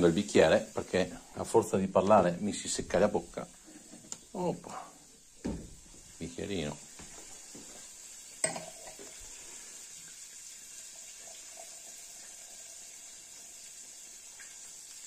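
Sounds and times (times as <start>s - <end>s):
sparkling wine pouring and fizzing: 0.0s - 15.0s
glass clinking: 8.4s - 9.1s.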